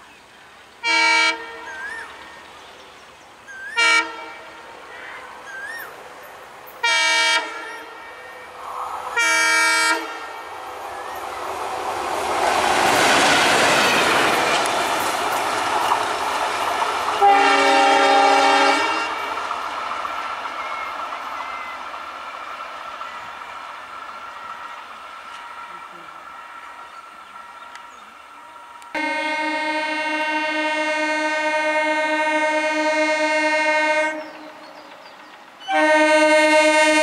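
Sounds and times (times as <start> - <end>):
diesel locomotive passing: 0.0 - 37.0
locomotive horn blasts: 0.8 - 1.9, 3.7 - 5.4, 6.8 - 10.5, 17.2 - 19.4, 28.9 - 34.4, 35.7 - 37.0.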